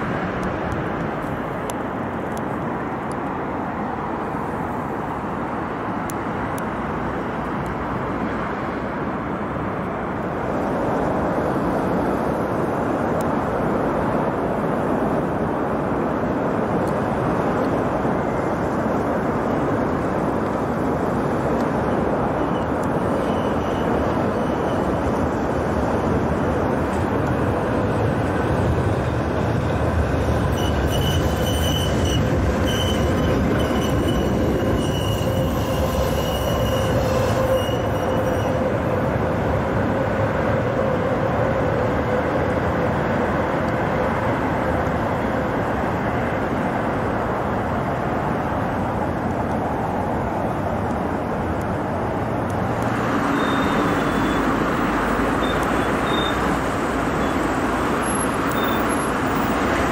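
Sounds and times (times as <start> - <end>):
tram running on rails: 0.0 - 59.9
thin high whine: 30.5 - 41.8.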